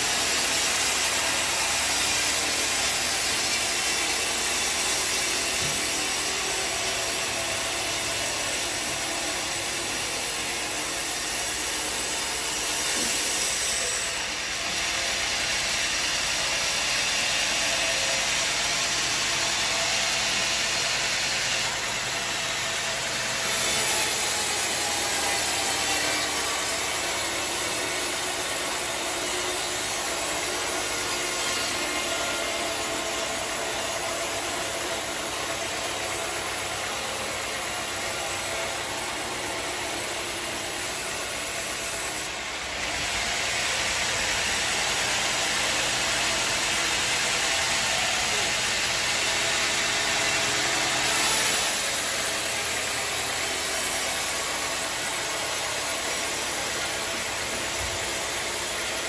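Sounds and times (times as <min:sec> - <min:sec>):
band saw cutting through log: 0:00.0 - 0:59.0.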